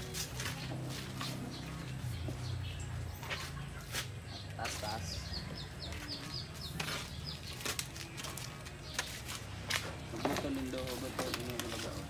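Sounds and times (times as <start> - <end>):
small bird chirping: 0.4 - 9.5.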